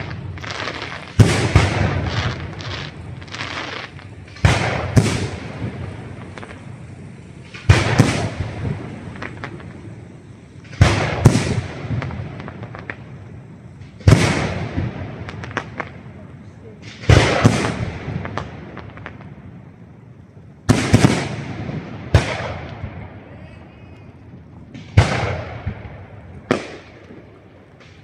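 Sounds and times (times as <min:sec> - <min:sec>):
crackling firework pops: 0:00.0 - 0:16.1, 0:16.8 - 0:28.0
firework shells bursting: 0:00.0 - 0:16.1, 0:23.9 - 0:28.0.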